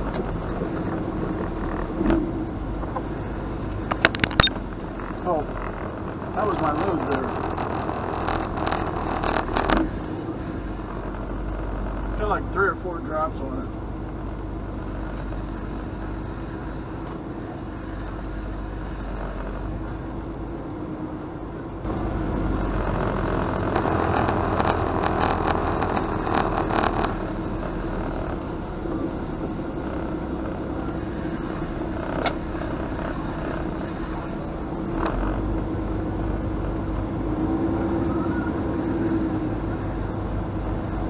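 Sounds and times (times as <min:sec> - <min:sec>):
rattling clatter: 0:00.0 - 0:17.2, 0:21.8 - 0:36.8
truck diesel engine running: 0:00.0 - 0:41.0
sharp click: 0:03.9 - 0:04.6.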